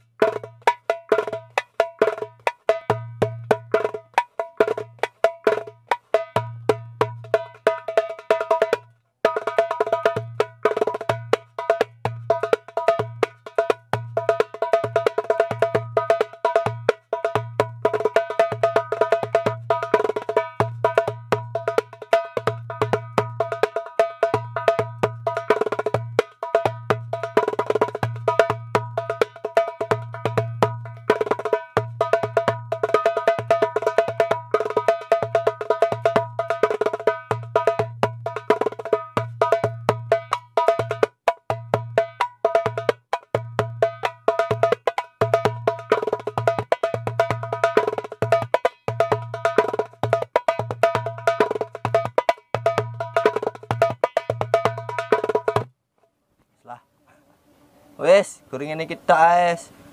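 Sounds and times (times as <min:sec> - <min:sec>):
darbuka bass strokes: 0:00.0 - 0:55.7
darbuka ringing rim strokes: 0:00.0 - 0:55.7.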